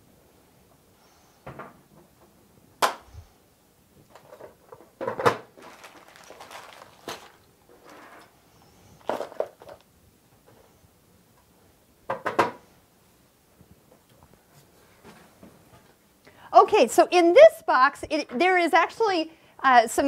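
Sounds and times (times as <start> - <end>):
packaging scraping and rustling: 4.1 - 8.3, 9.0 - 9.8.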